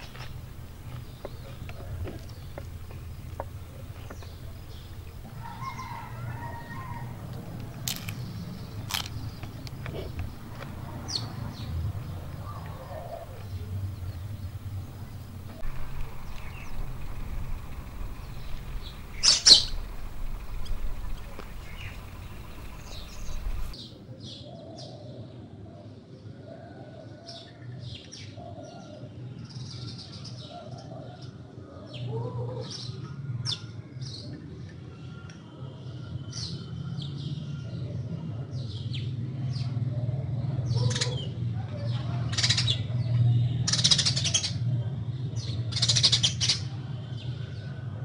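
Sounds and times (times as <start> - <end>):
steady low hum: 0.0 - 23.8
small birds chirping: 0.0 - 24.0.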